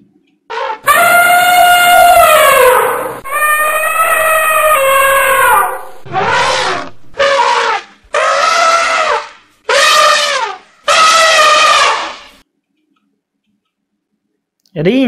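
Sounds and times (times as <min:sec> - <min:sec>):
elephant trumpeting: 0:00.5 - 0:12.4.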